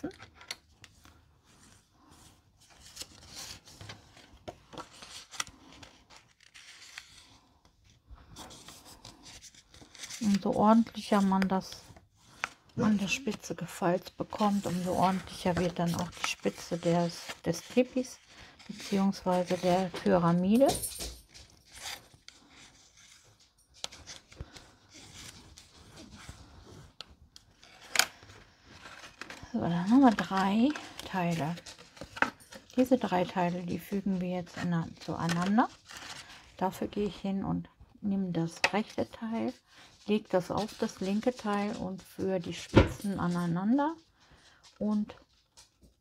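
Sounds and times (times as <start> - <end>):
card rustling and scraping: 0.0 - 20.6, 21.2 - 37.0
card stock rustling and sliding: 0.8 - 7.4.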